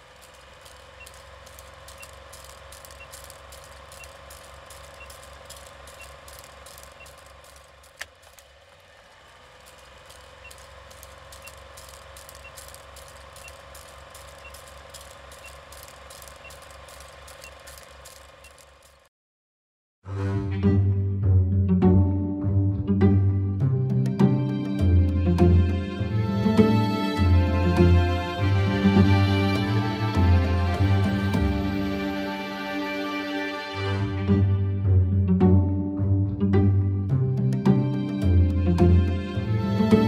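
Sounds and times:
mechanical ticking clicks: 0.0 - 8.5, 9.6 - 19.1
low pulsing hum: 20.2 - 32.6, 33.7 - 40.0.

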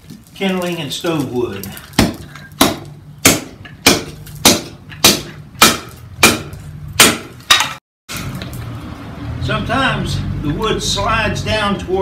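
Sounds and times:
axe knocking on chopping block: 2.0 - 7.7.

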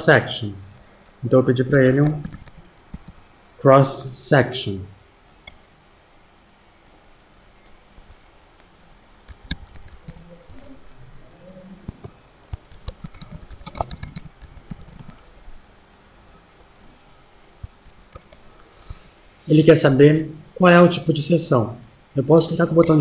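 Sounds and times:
computer keyboard typing: 0.7 - 3.5, 7.9 - 15.5, 16.1 - 19.0.

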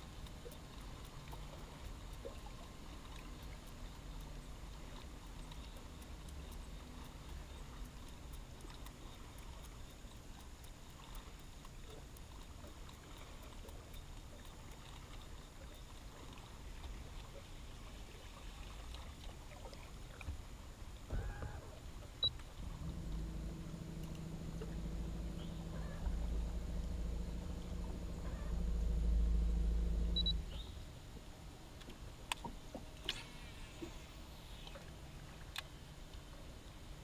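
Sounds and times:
faint low rumble: 0.0 - 37.0
electric motor humming: 22.6 - 30.5.

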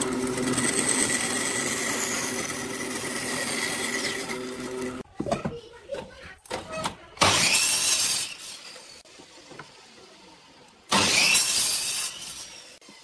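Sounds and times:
miter saw cutting wood: 0.0 - 5.0, 7.2 - 9.0, 10.9 - 13.0.

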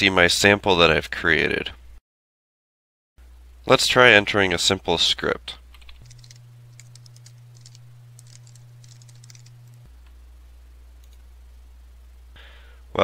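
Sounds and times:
low steady hum: 3.2 - 13.0
computer keyboard typing: 5.7 - 9.8.

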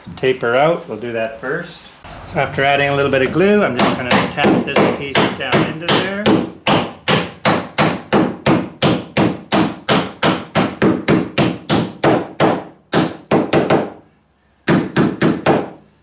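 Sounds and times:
hammer tapping on wood: 3.8 - 14.0, 14.7 - 15.8.

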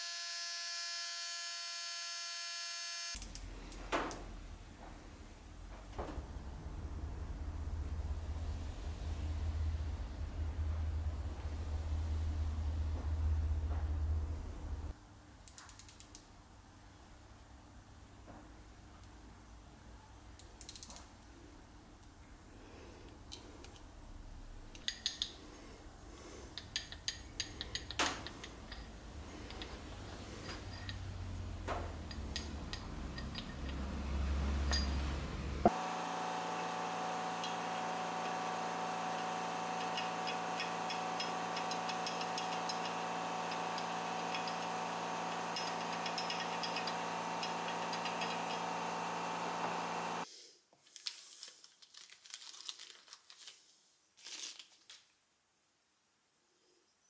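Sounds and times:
steady machine hum: 4.3 - 14.9, 28.2 - 50.3
small metal parts clinking: 26.6 - 31.2, 45.3 - 48.6.

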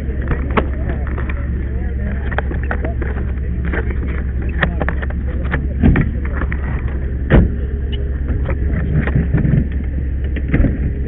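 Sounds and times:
engine running: 0.0 - 11.0.

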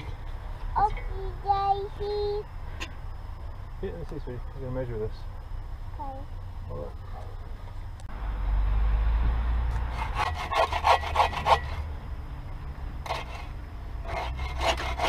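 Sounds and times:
bow saw cutting log: 9.8 - 11.9, 13.0 - 15.0.

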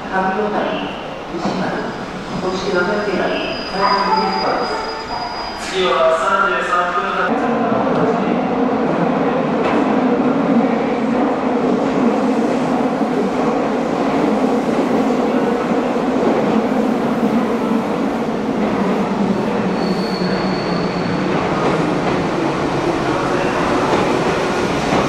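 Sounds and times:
high-pitched wheel squeal: 3.0 - 5.9, 19.7 - 21.1
train wheels rumbling on rail: 7.6 - 25.0.

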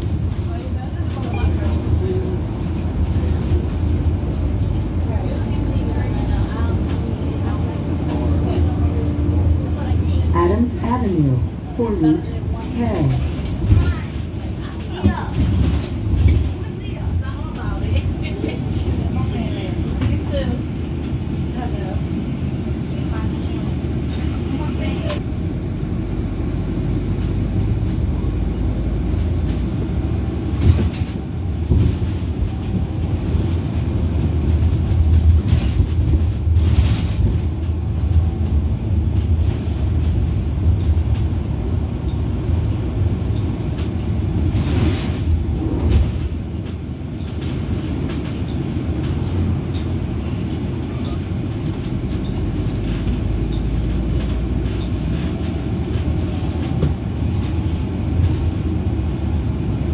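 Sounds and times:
bus engine and road rumble: 0.0 - 59.9
bus body clattering: 30.5 - 58.6.

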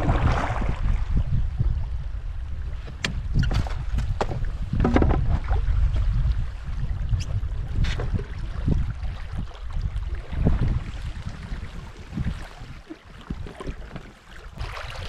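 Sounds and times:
water splashing along hull: 0.0 - 15.0
wind buffeting microphone: 0.0 - 15.0.

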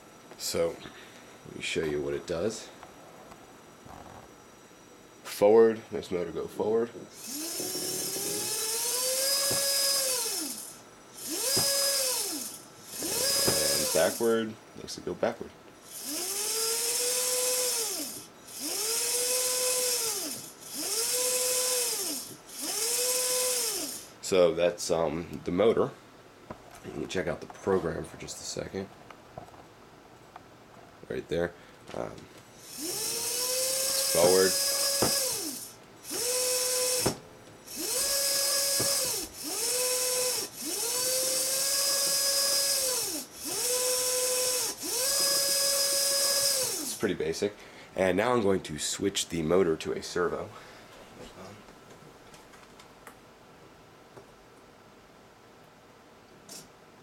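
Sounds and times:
electric motor whining: 7.2 - 14.4, 15.8 - 24.1, 32.6 - 47.1.

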